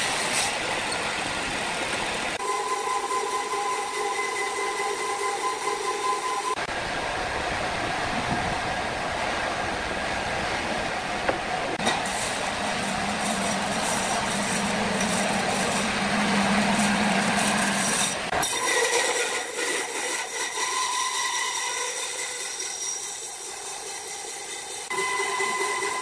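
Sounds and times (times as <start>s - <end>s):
band sawmill machinery running: 0.0s - 7.2s, 11.6s - 26.0s
low hum: 2.4s - 18.4s.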